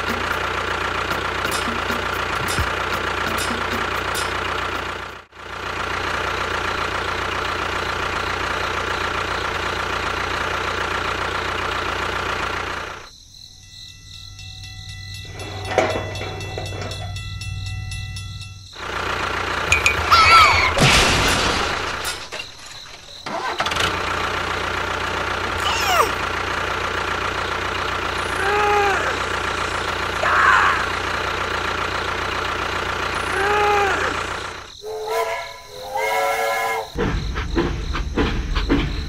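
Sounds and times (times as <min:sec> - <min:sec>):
engine drone: 0:00.0 - 0:13.1, 0:14.5 - 0:36.0
short pitched cries: 0:25.6 - 0:26.2.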